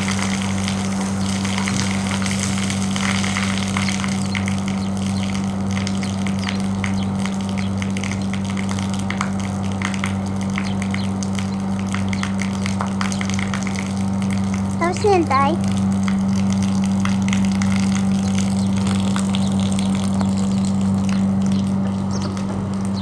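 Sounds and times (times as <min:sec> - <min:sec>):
water spraying on metal unit: 0:00.0 - 0:15.5
electric water pump humming: 0:00.0 - 0:23.0.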